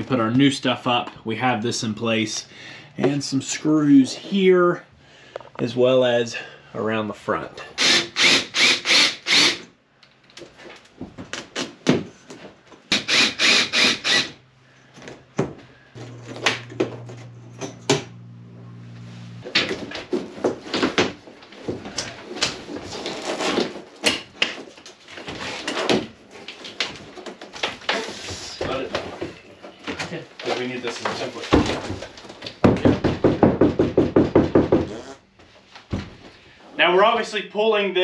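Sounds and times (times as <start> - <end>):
cordless drill bursts: 7.8 - 9.7, 12.9 - 14.4
low motor hum: 16.0 - 19.6
panel scraping and crinkling: 19.4 - 32.6.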